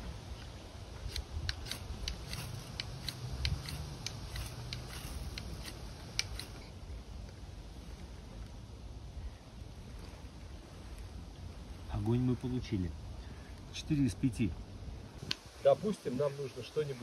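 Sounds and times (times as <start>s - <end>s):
knife scraping ferro rod: 1.1s - 6.6s.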